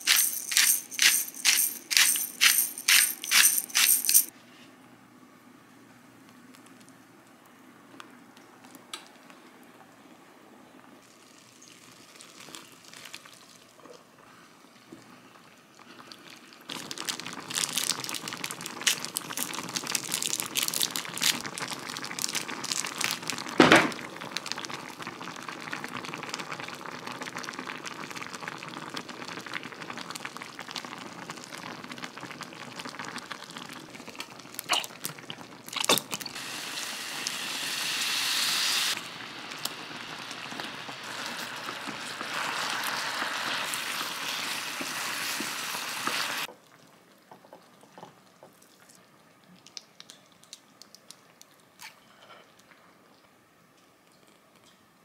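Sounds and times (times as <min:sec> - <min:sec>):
sauce bubbling in a frying pan: 0:11.0 - 0:50.1
bright hiss: 0:36.4 - 0:39.0.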